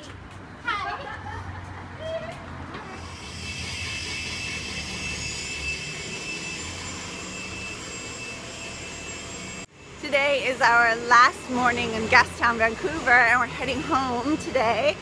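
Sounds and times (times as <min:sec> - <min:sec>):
thin high whine: 0:03.0 - 0:09.7
machine drone: 0:03.0 - 0:10.0.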